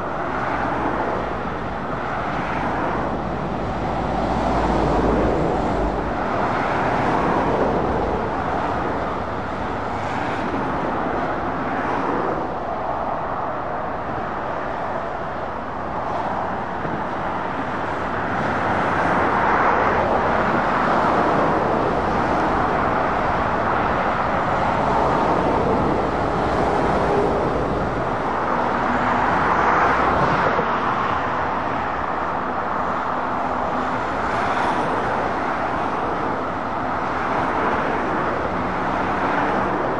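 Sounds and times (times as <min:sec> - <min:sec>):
lorries and cars passing: 0:00.0 - 0:39.9.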